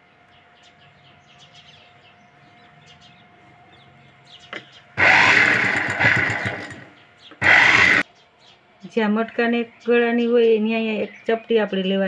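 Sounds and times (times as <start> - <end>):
sewing machine stitching: 5.0 - 6.8.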